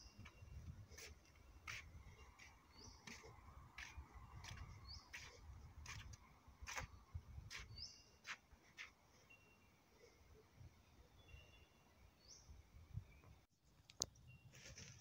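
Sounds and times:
wind rumble on microphone: 0.0s - 1.2s, 3.4s - 7.8s
bird chirping: 0.0s - 6.1s, 7.5s - 9.8s, 10.9s - 13.4s
footsteps on wooden boardwalk: 0.1s - 8.9s.

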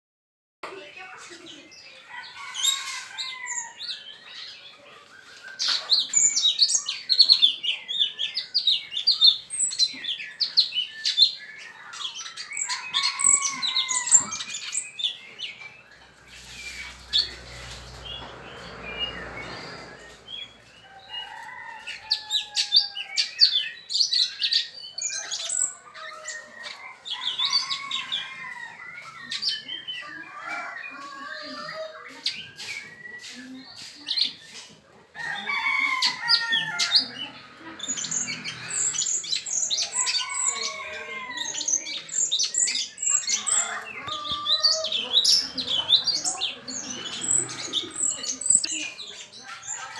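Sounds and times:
songbird chirps and whistles: 31.7s - 34.6s.

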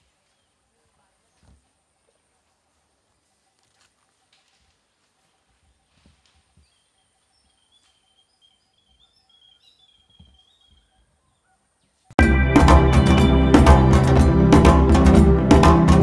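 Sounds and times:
loud background music: 12.2s - 16.0s.

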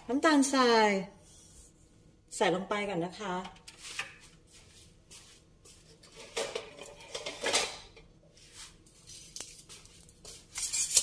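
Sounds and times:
metal utensils clinking and scraping: 6.1s - 8.0s, 10.5s - 11.0s.

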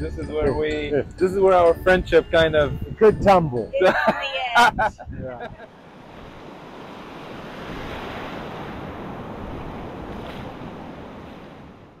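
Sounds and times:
surf washing onto beach: 5.7s - 12.0s.

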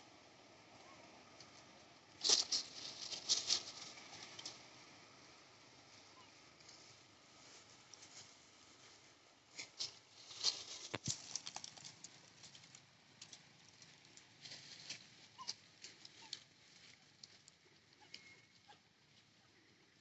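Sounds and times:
small clicks and rustles: 1.4s - 4.7s, 9.5s - 19.3s
faint short squeaks: 18.0s - 18.8s.

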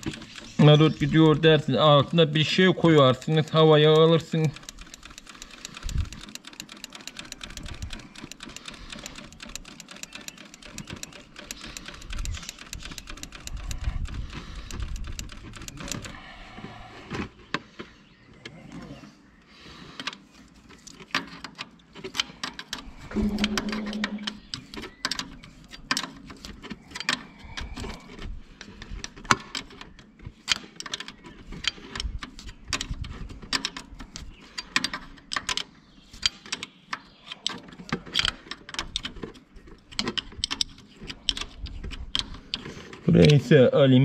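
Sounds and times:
low hum: 23.0s - 24.6s.

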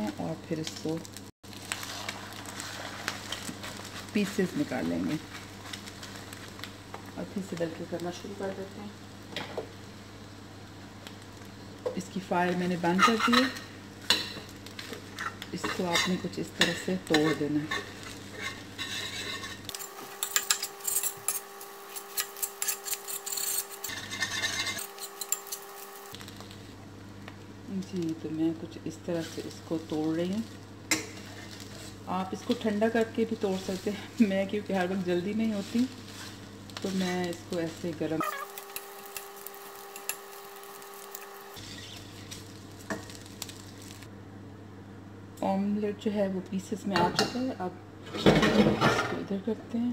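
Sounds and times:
spatula and fork scraping a pan: 1.6s - 4.3s, 12.8s - 26.1s, 30.9s - 43.6s.

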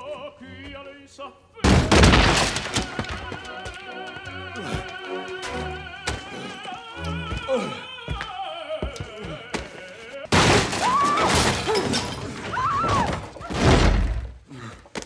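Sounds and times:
opera singer with vibrato: 0.0s - 2.0s, 2.7s - 11.3s
orchestral accompaniment: 2.9s - 7.7s.

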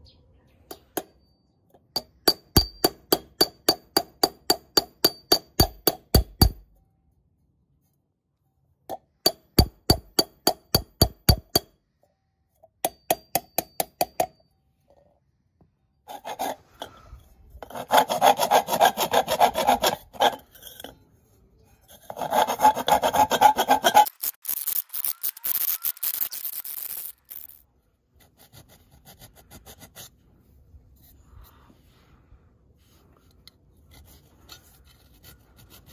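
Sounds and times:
hammer ringing on copper pot: 2.0s - 6.6s
rubbing strokes on copper: 16.1s - 20.8s, 21.8s - 24.6s
faint filing on metal: 16.1s - 24.1s, 30.9s - 35.9s.

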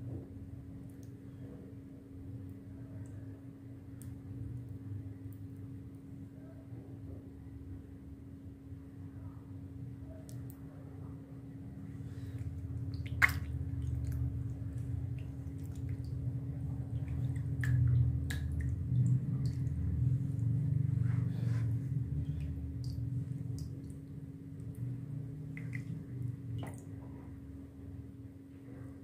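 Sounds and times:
wet clay squelching: 12.1s - 23.9s, 24.7s - 26.9s
water drips: 12.2s - 20.8s, 22.1s - 27.1s.

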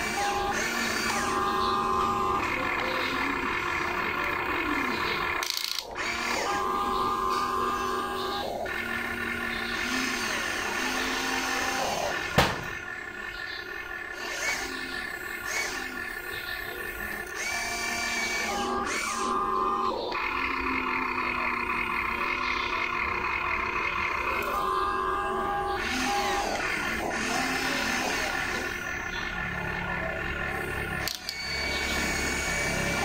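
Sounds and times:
electric motors whining: 0.0s - 33.0s
sharp click: 31.0s - 31.4s.

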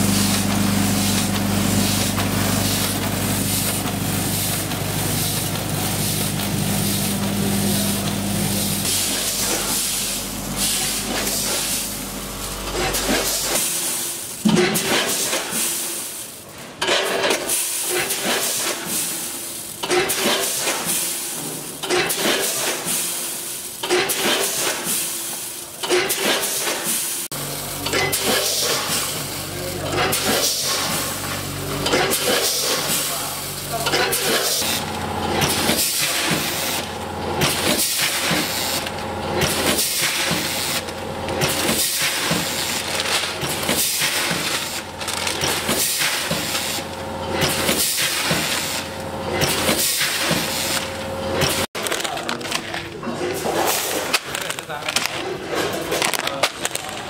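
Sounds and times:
low mechanical hum: 0.0s - 15.5s, 27.3s - 57.0s
granules rattling through feed pans: 29.7s - 48.8s.

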